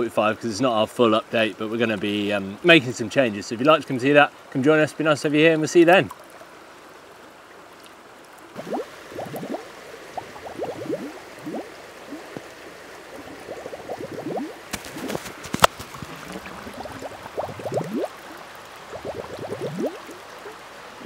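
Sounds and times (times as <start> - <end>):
stream hiss: 0.0 - 21.0
air bubbling from submerged pipe: 8.5 - 20.6.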